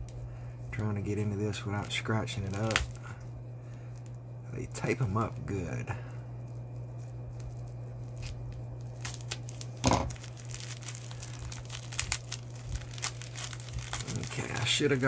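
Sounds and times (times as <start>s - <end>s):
steady low hum: 0.0s - 15.0s
bubble wrap crinkling and tearing: 0.8s - 3.2s, 6.4s - 15.0s.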